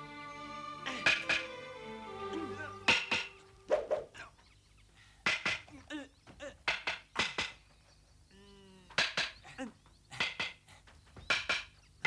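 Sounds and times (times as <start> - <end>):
wooden sticks clacking: 0.9 - 1.6, 2.3 - 4.0, 5.2 - 7.7, 8.9 - 11.8.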